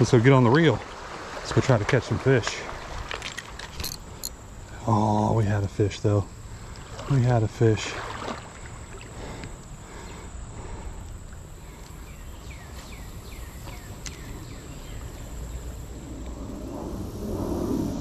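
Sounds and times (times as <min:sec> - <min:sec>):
creek water flowing: 0:06.3 - 0:14.4
bird singing: 0:11.6 - 0:15.9.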